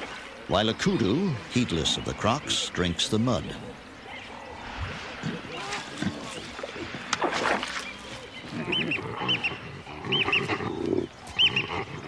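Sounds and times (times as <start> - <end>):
baboon grunts and growls: 8.4 - 12.0.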